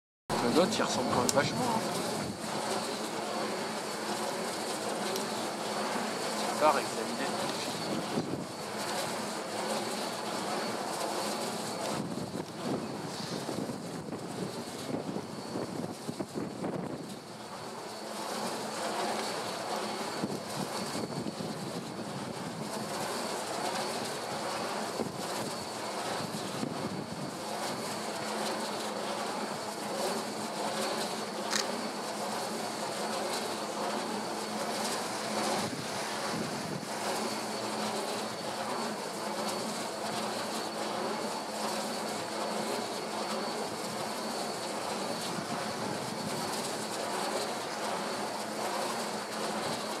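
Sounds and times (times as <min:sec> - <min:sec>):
distant engine drone: 0:00.3 - 0:50.0
sharp click: 0:31.5 - 0:31.7.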